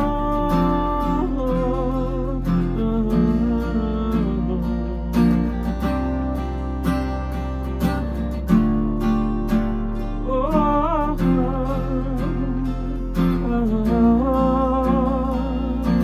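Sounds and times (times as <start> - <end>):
man singing long notes: 0.0 - 5.5, 10.2 - 16.0
acoustic guitar strumming: 0.0 - 16.0.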